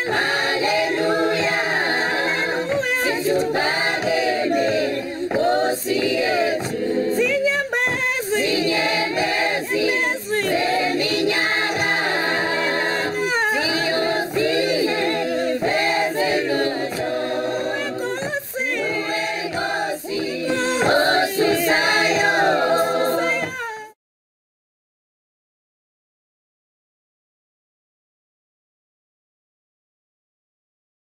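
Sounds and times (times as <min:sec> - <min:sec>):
choir singing a cappella: 0:00.0 - 0:23.6.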